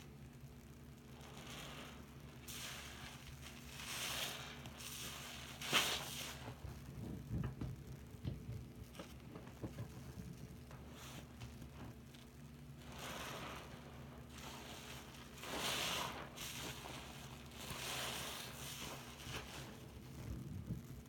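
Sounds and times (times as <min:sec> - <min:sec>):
fizzing crackling suds: 0:00.9 - 0:21.0
soapy sponge squishing: 0:01.0 - 0:21.0.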